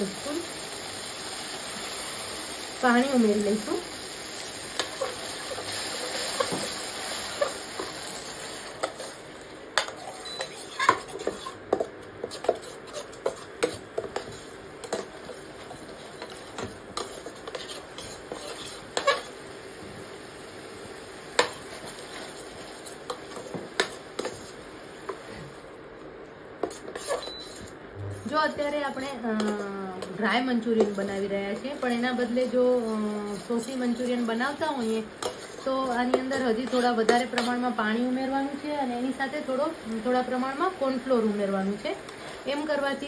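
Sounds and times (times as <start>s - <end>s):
sauce sizzling: 0.0s - 25.7s, 28.6s - 43.0s
metal spoon scraping frying pan: 9.8s - 15.1s, 16.1s - 19.3s, 26.6s - 27.7s, 29.4s - 37.7s.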